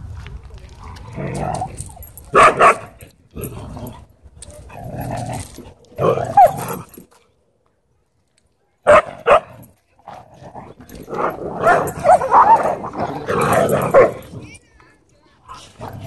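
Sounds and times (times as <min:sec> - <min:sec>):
dogs growling: 0:00.8 - 0:07.2, 0:09.1 - 0:14.6, 0:15.5 - 0:16.0
sharp dog barks: 0:02.3 - 0:03.0, 0:08.9 - 0:09.6.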